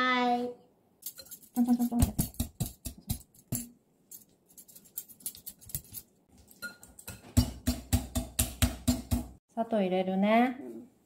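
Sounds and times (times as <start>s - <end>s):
kitchen things clicking and tapping: 1.0s - 9.4s.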